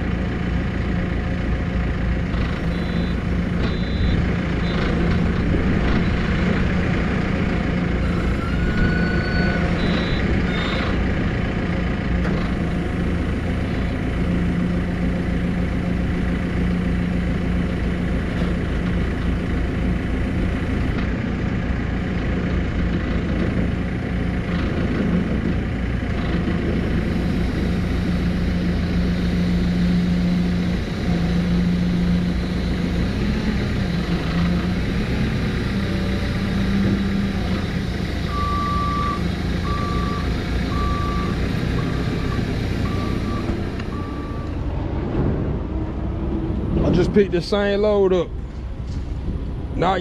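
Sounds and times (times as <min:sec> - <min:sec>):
diesel engine running: 0:00.0 - 0:50.0
reversing alarm beeps: 0:02.6 - 0:05.0, 0:08.0 - 0:11.0, 0:38.2 - 0:44.6.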